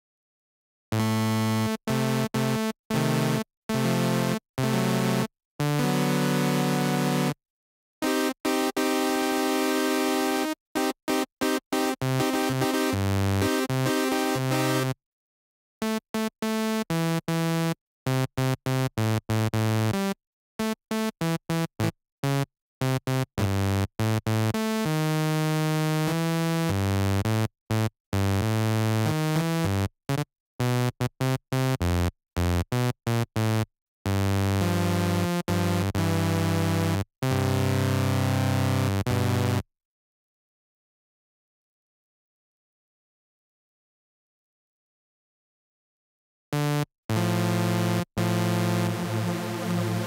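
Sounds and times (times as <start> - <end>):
synthesizer chords: 47.1 - 50.0.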